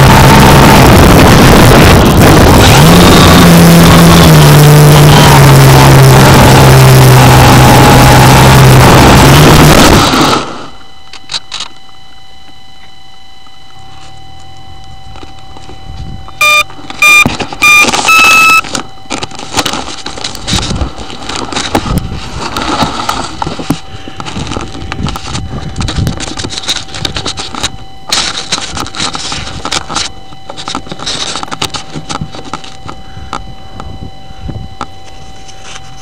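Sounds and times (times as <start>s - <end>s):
loud electronic beeps: 0.0s - 11.7s, 12.8s - 19.1s
faint electronic whine: 0.0s - 36.0s
rustling and scraping in grass: 19.2s - 32.8s.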